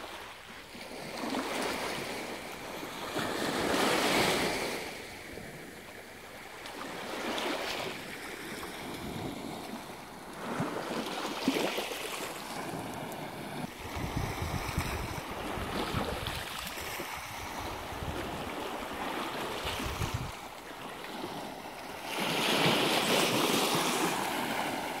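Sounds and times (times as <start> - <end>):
waves washing onto stony shore: 6.8 - 25.0
wind buffeting microphone: 13.7 - 20.5.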